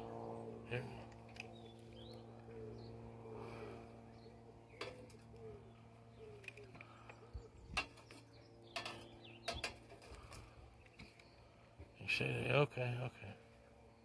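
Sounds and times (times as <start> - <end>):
pigeon cooing: 2.4 - 3.8, 4.4 - 8.0.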